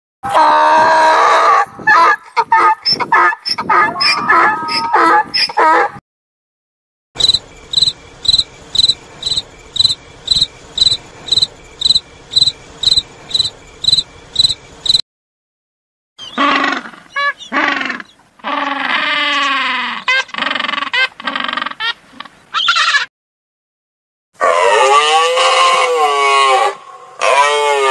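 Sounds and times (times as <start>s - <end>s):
penguins calling: 1.9s - 5.9s, 16.2s - 23.1s
crickets chirping: 7.2s - 15.0s.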